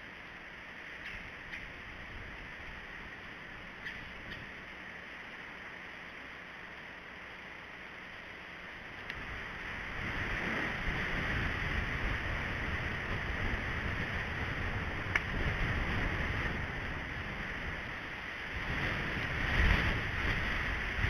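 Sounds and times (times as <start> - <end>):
wind on microphone: 9.2 - 21.0.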